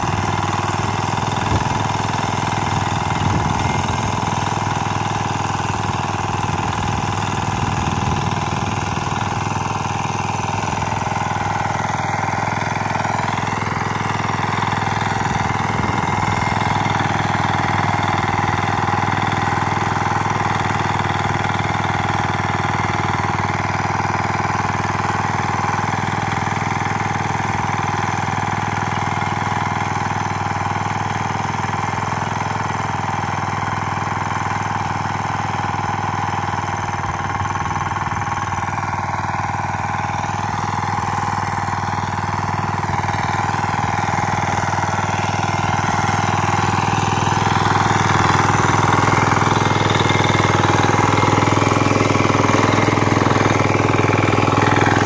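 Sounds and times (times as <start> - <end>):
tines churning soil: 0.0 - 28.3, 37.2 - 55.0
tiller engine running: 0.0 - 55.0.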